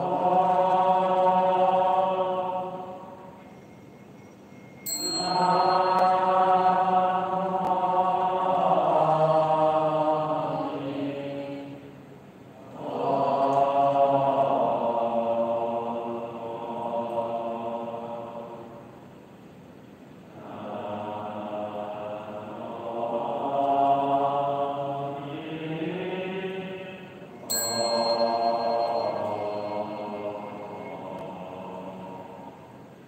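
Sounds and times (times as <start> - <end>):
devotional chanting: 0.0 - 3.8, 4.9 - 19.1, 20.3 - 33.0.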